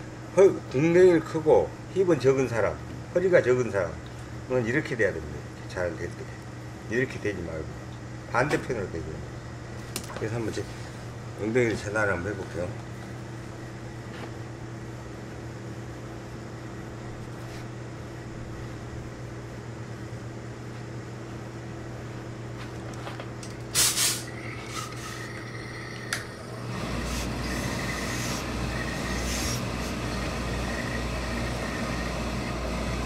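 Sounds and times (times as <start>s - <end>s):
steam iron hissing: 23.8s - 33.0s
iron rubbing over cloth: 26.7s - 32.1s.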